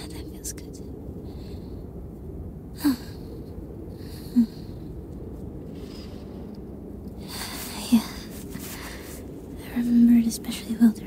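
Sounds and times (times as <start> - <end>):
low rumble: 0.0 - 11.0
woman breathing softly: 1.1 - 2.0, 7.1 - 9.5.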